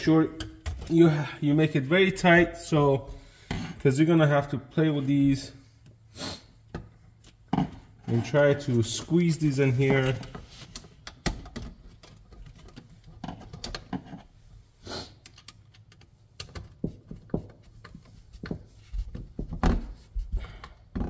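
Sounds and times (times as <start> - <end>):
screwdriver and wires clicking: 15.2 - 16.8.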